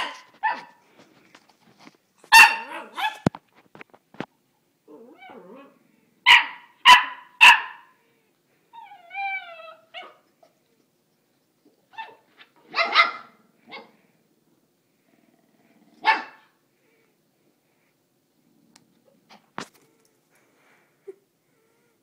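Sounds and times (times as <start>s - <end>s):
dog barking: 0.0s - 0.8s, 2.3s - 3.3s, 6.3s - 8.0s, 12.0s - 13.9s, 16.0s - 16.5s
dog yipping: 0.0s - 0.8s, 2.3s - 3.3s, 6.3s - 7.9s, 8.8s - 10.2s, 11.9s - 13.9s, 16.0s - 16.4s
dog whining: 4.9s - 5.8s, 8.7s - 10.2s.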